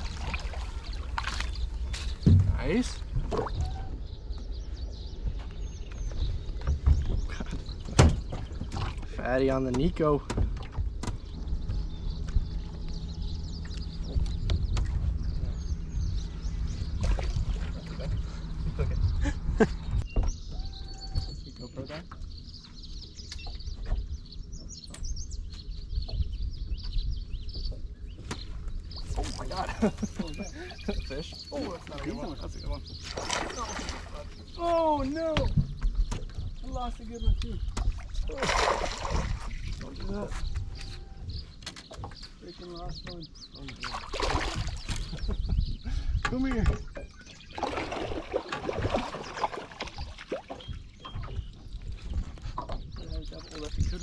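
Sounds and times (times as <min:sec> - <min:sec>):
fish splashing in water: 0:00.0 - 0:01.8, 0:33.0 - 0:34.3, 0:37.8 - 0:39.7, 0:43.8 - 0:45.1, 0:47.5 - 0:50.8
small birds chirping: 0:00.0 - 0:54.0
low steady rumble: 0:10.4 - 0:41.6.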